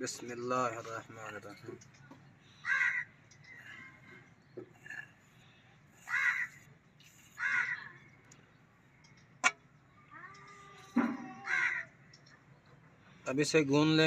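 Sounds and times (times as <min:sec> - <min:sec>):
crow cawing: 0:02.5 - 0:04.0, 0:06.0 - 0:06.7, 0:07.4 - 0:08.1, 0:11.1 - 0:12.0.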